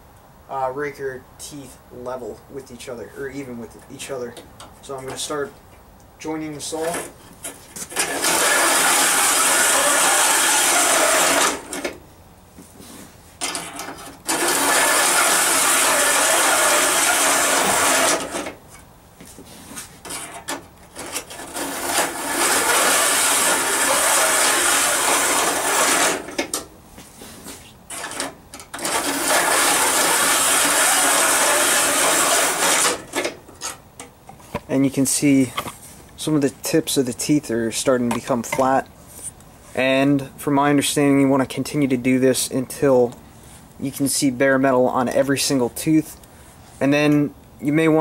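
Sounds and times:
file rasping on saw teeth: 7.9s - 11.6s, 14.3s - 18.4s, 21.4s - 26.2s, 28.8s - 33.1s.

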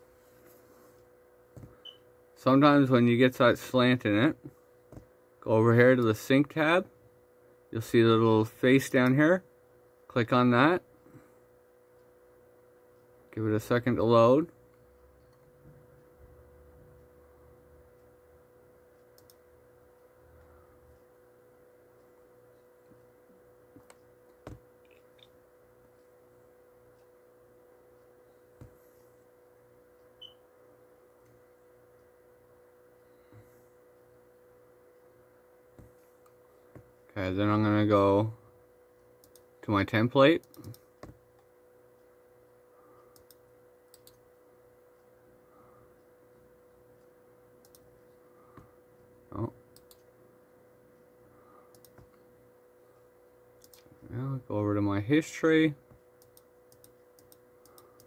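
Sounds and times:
faint steady hum: 0.0s - 58.0s
soft clicks: 18.9s - 21.1s, 39.0s - 39.5s, 40.2s - 42.1s, 43.0s - 44.3s, 46.0s - 49.1s, 49.7s - 50.1s, 51.7s - 52.3s, 53.0s - 54.2s, 55.9s - 58.0s.

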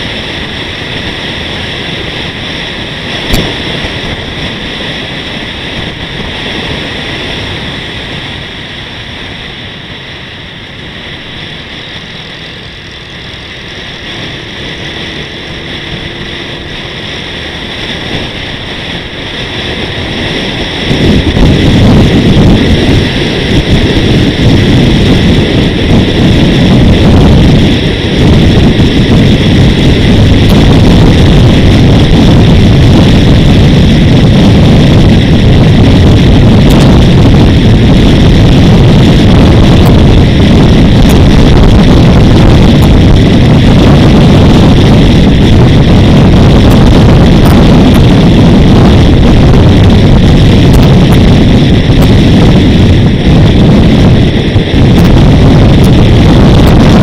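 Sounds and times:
loud wind buffeting: 0.0s - 57.0s
wind and road noise: 0.0s - 57.0s.

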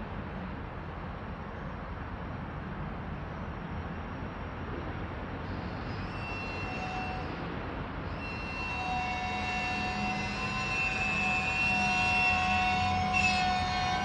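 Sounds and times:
diesel locomotive idling: 5.4s - 14.0s
thin high whining tones: 5.5s - 14.0s.

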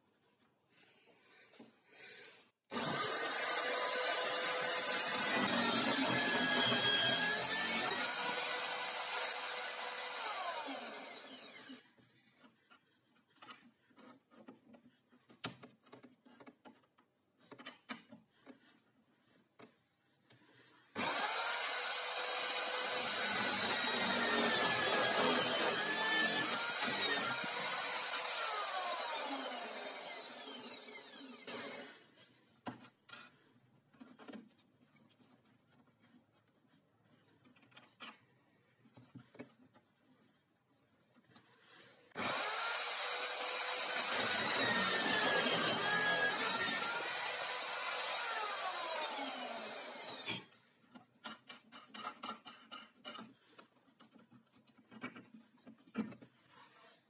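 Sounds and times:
drill press boring into plywood: 2.7s - 11.8s, 21.0s - 32.0s, 42.2s - 50.5s.

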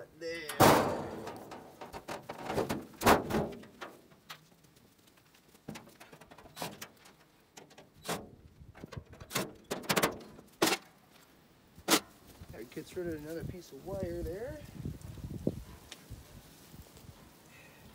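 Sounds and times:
sheet metal knocks and clanks: 0.5s - 4.0s.

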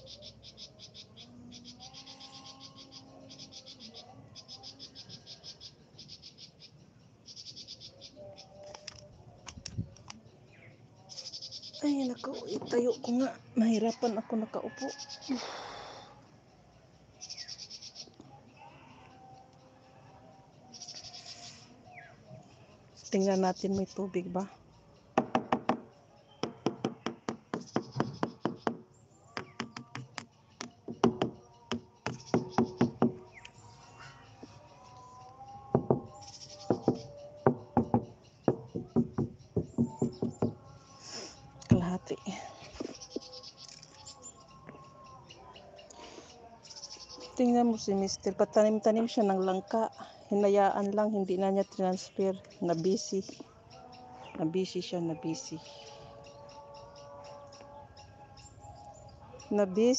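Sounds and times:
knocks on plastic water tank: 25.2s - 33.2s.

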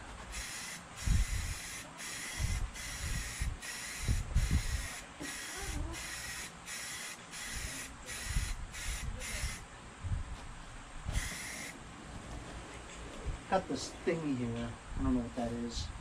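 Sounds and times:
spray paint can hissing: 0.3s - 9.6s, 11.1s - 11.7s.

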